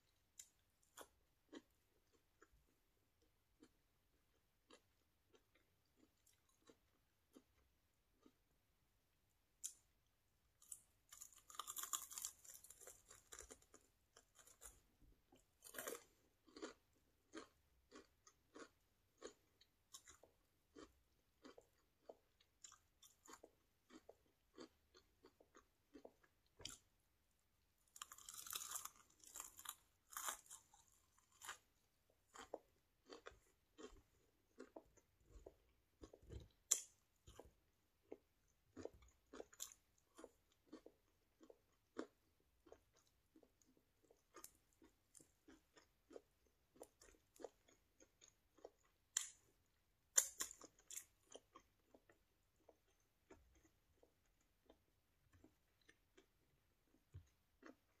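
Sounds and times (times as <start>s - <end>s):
crunching bites of fried chicken: 10.6s - 14.8s, 15.5s - 26.9s, 27.9s - 34.0s.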